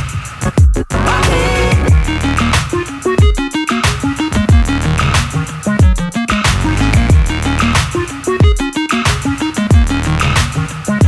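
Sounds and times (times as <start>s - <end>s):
electronic music with a beat: 0.0s - 11.0s
deep falling bass hits: 0.8s - 2.6s.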